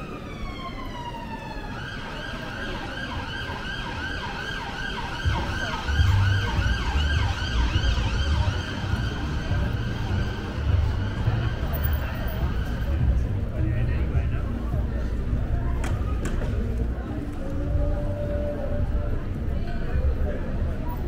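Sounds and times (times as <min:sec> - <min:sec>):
emergency vehicle siren: 0:00.0 - 0:13.2.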